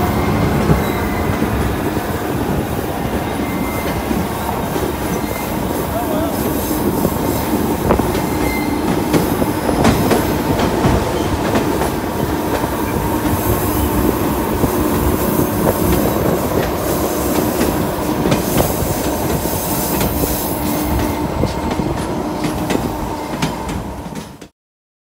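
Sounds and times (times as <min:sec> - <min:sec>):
train wheels rumbling on rail: 0:00.0 - 0:24.5
wheel squeal: 0:00.2 - 0:01.4, 0:03.4 - 0:04.0, 0:05.0 - 0:05.6, 0:08.2 - 0:08.8.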